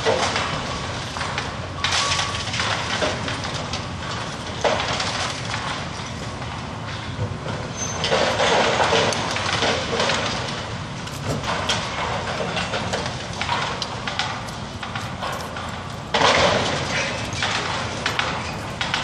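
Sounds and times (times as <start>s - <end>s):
brick rubble clattering down: 11.2s - 19.0s.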